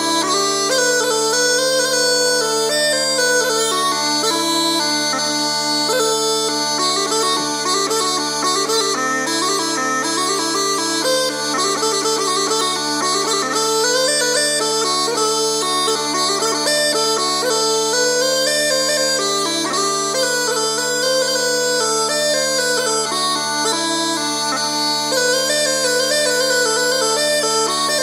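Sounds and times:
bagpipe drones: 0.0s - 28.0s.

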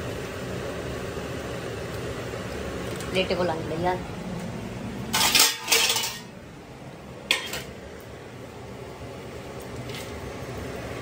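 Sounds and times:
utensils and plates clattering: 5.1s - 6.4s, 7.3s - 7.7s.

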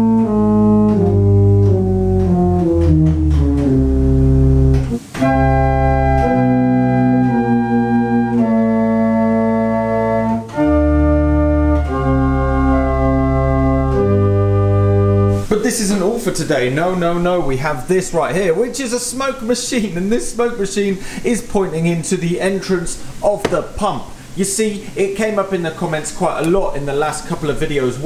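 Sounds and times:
church organ chords: 0.0s - 17.2s.

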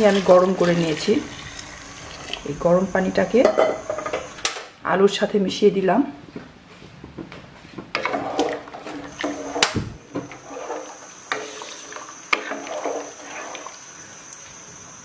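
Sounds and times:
liquid sloshing in pot: 0.0s - 4.1s, 7.9s - 13.9s.

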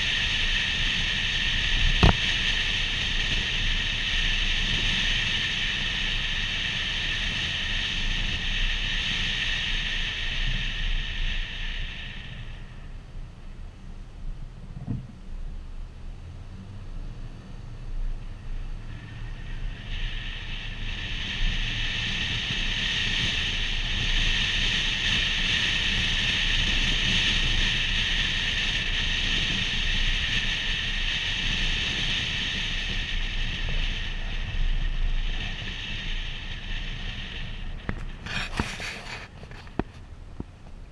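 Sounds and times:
road noise rumble: 0.0s - 40.9s.

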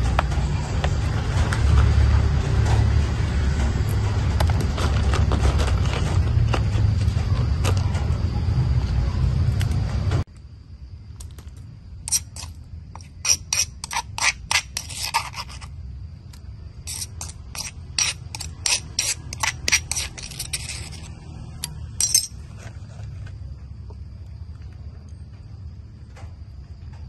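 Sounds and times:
metal spoon scraping ceramic bowl: 12.1s - 15.7s, 16.9s - 21.1s.

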